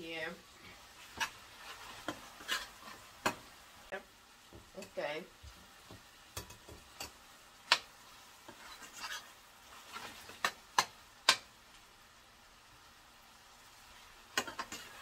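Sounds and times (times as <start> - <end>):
food sizzling in oil: 0.0 - 15.0
spoon stirring scrapes: 0.6 - 3.6, 8.1 - 10.9, 14.3 - 15.0
metal spoon clicking on pan: 10.4 - 11.5, 14.4 - 15.0.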